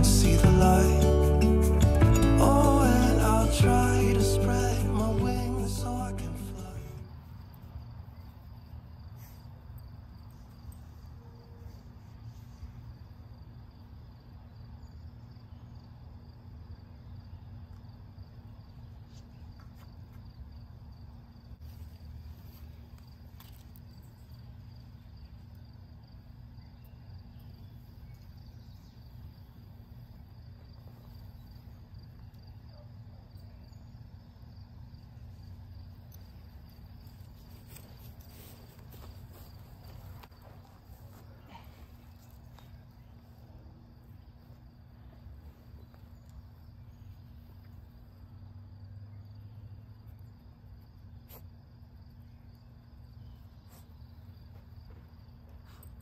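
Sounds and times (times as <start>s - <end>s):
low steady rumble: 0.0s - 7.1s
insects trilling: 0.0s - 56.0s
faint rustles and ticks: 36.0s - 43.4s, 53.5s - 56.0s.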